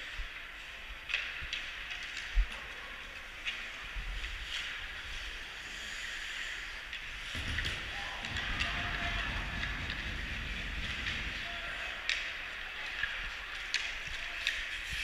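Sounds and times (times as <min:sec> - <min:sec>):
sticks and puck clacking: 0:00.3 - 0:15.0
low rumble: 0:07.4 - 0:11.8.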